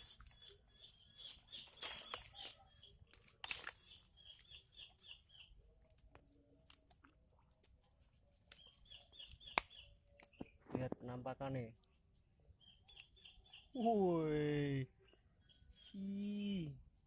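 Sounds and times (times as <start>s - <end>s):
faint bird chirping: 0.0s - 17.0s
crackling of dry leaf litter: 1.2s - 10.9s.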